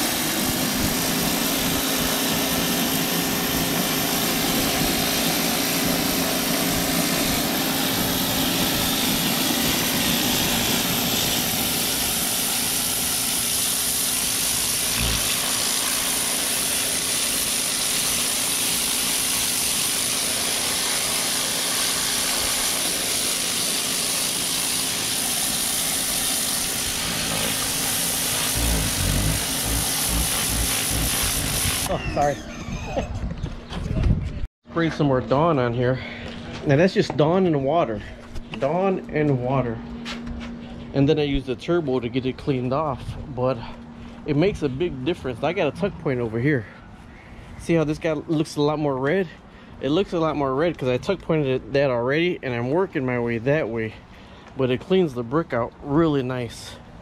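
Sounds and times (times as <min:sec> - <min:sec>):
water jet hissing on brick: 0:00.0 - 0:31.9
pressure washer pump humming: 0:00.0 - 0:32.9.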